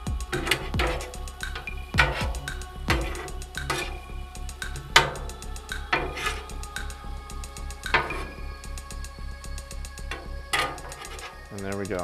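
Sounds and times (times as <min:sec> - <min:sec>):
background music with steady beat: 0:00.0 - 0:12.0
metal spatulas scraping griddle: 0:00.3 - 0:02.3, 0:02.9 - 0:04.0, 0:05.9 - 0:06.5, 0:07.9 - 0:08.3, 0:10.1 - 0:11.4.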